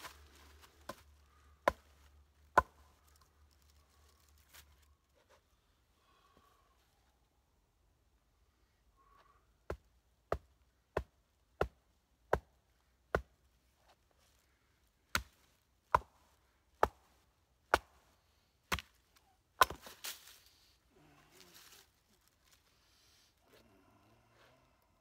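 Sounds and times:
hatchet chopping wood: 1.6s - 1.9s, 2.5s - 2.8s, 15.1s - 16.2s, 16.8s - 17.1s, 17.7s - 18.0s, 18.7s - 18.9s, 19.6s - 19.9s.

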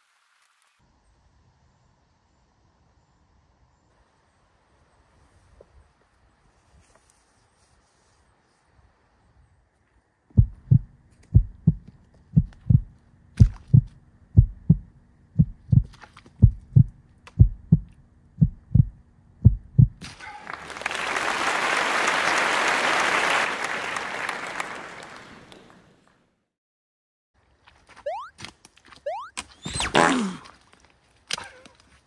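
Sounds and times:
heartbeat thumps: 10.3s - 20.0s
applause: 20.2s - 26.1s.

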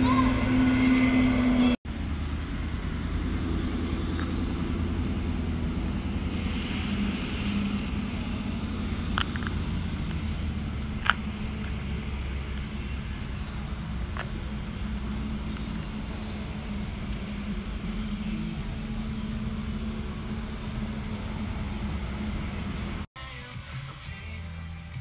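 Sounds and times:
vehicle running rumble: 0.0s - 25.0s
sharp clicks: 6.1s - 13.4s.

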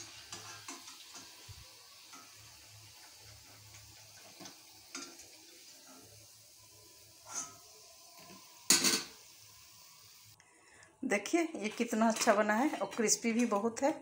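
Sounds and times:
spatula scraping metal pan: 0.0s - 1.3s, 7.2s - 7.7s
low hiss: 0.0s - 12.0s.

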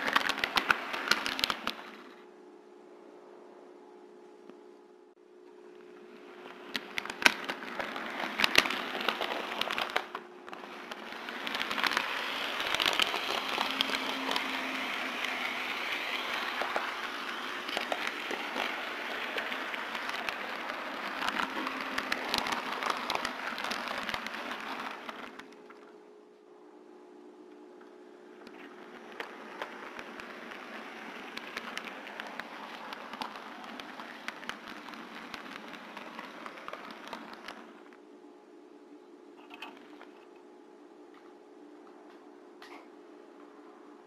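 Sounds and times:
model train wheels rattling on rail: 0.0s - 2.1s, 6.4s - 25.5s, 28.6s - 37.7s.

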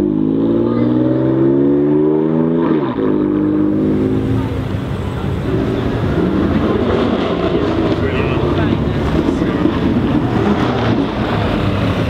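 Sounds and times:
car engine accelerating: 0.0s - 12.0s
steady noisy rumble: 3.4s - 12.0s.

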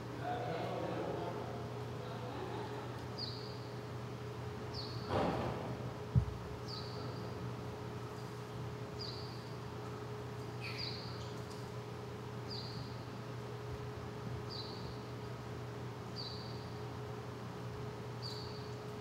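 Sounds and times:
steady low hum: 0.0s - 19.0s
low thump: 5.1s - 6.4s
mongooses chirping: 10.6s - 11.3s, 18.2s - 18.7s.

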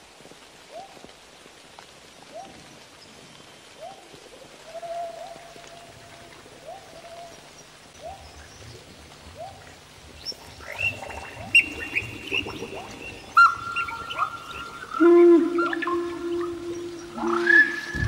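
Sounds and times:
swooping held animal calls: 10.3s - 18.0s.

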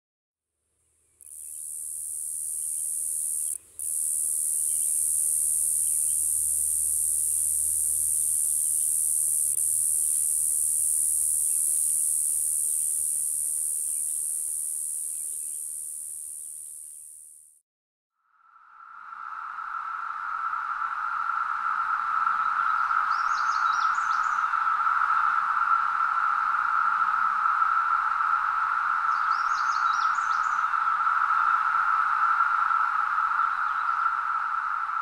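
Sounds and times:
cicada high-pitched buzz: 1.2s - 17.6s, 19.1s - 35.0s.

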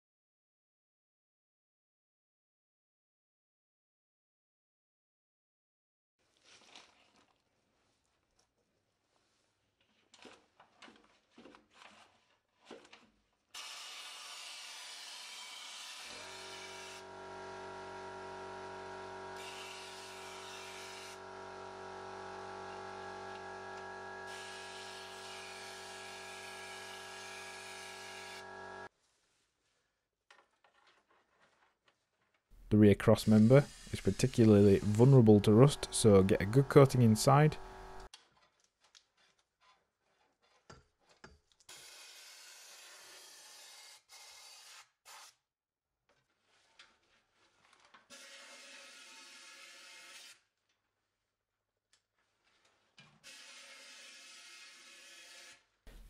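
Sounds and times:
air wax gun hissing: 17.8s - 28.9s, 33.2s - 38.1s
steady hum: 34.3s - 38.1s.

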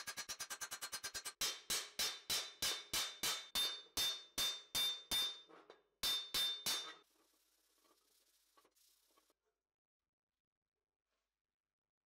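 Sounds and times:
hammer striking steel helmet: 1.3s - 7.0s.

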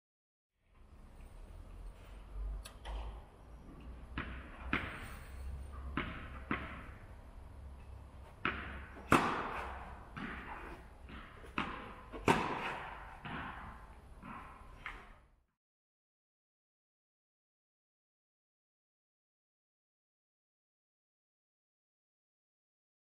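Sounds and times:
tennis ball bouncing: 2.8s - 15.2s
racket hitting tennis ball: 3.9s - 15.3s.

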